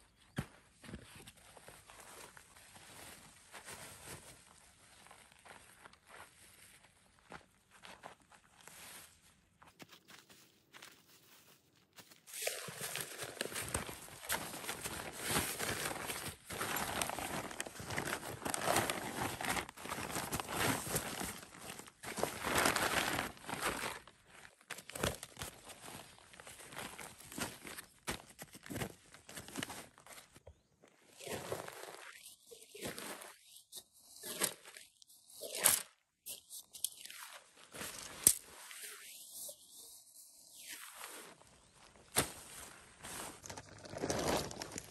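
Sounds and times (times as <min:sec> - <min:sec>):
tent fabric rustling and crinkling: 0:01.0 - 0:44.9
fabric and tarp rustling: 0:12.4 - 0:24.0.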